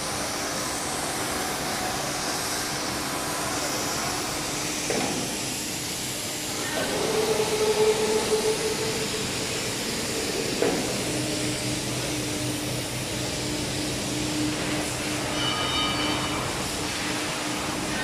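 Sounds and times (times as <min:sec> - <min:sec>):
machinery hiss: 0:00.0 - 0:18.0
low machinery hum: 0:06.5 - 0:18.0.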